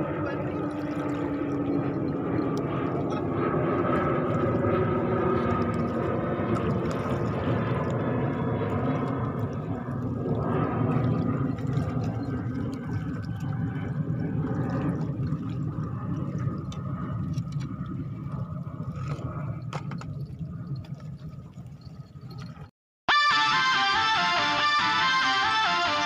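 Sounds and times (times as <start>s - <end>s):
low seaside rumble: 0.0s - 22.7s.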